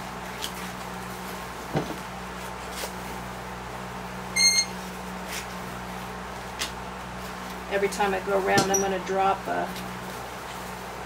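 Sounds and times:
broom stems and twine handled: 0.0s - 11.0s
steady low hum: 0.0s - 11.0s
short high squeak: 4.4s - 4.8s.

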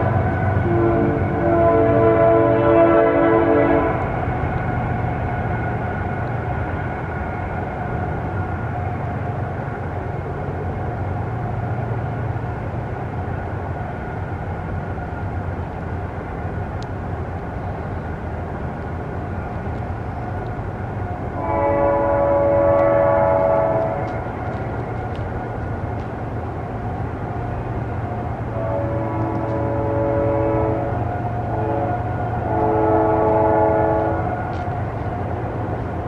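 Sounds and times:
train rumbling: 0.0s - 36.0s
train horn chord: 0.6s - 4.0s, 21.4s - 24.2s, 28.6s - 34.4s.

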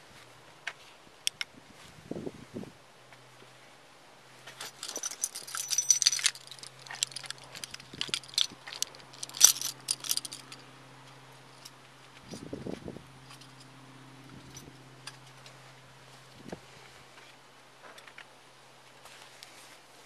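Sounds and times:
metallic jingling and clinking: 4.5s - 10.7s.

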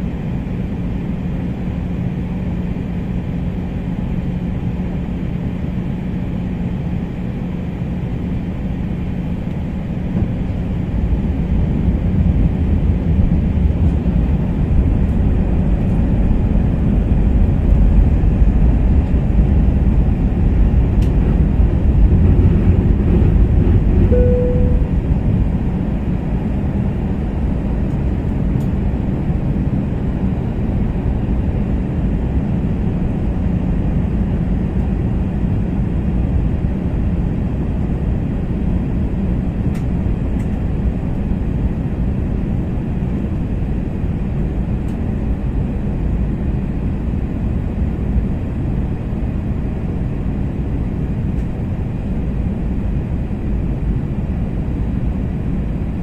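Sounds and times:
airliner cabin rumble: 0.0s - 56.0s
single cabin tone: 24.1s - 25.4s.

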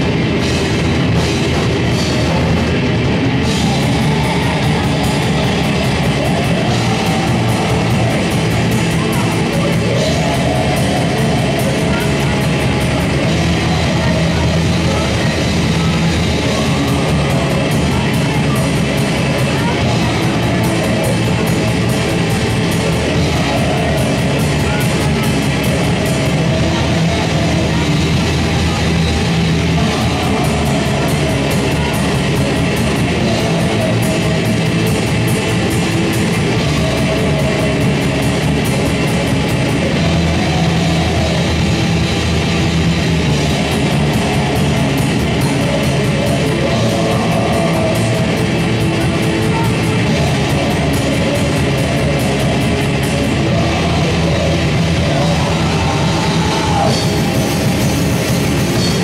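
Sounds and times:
fast drum and cymbal hits: 0.0s - 59.0s
live heavy rock band: 0.0s - 59.0s.

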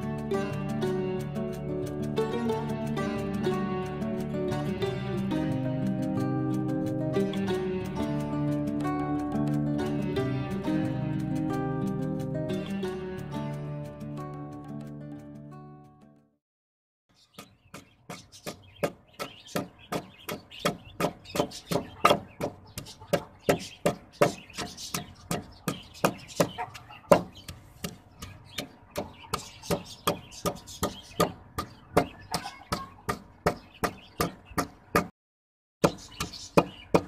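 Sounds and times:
wooden pestle pounding in mortar: 17.4s - 35.1s, 35.8s - 37.0s.

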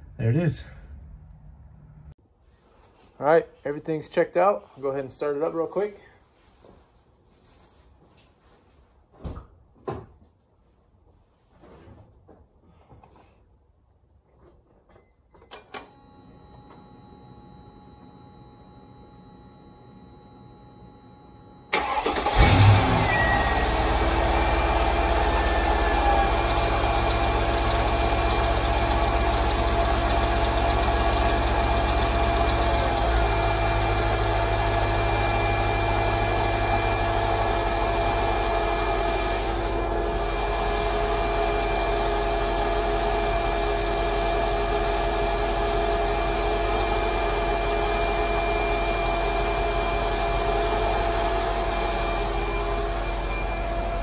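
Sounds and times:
car engine starting and idling: 20.0s - 54.0s
air pump whine: 21.8s - 54.0s.

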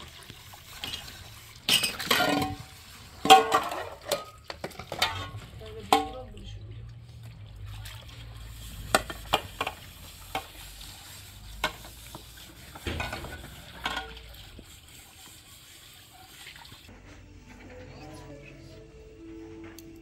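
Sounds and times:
dishes clinking and scraping: 0.8s - 6.4s, 11.6s - 14.6s
faint hiss of water: 6.9s - 16.9s.

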